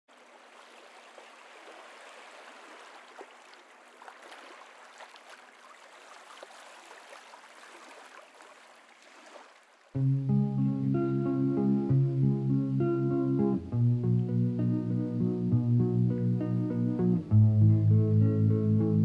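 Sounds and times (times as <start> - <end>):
sea water lapping and sloshing: 0.1 - 10.0.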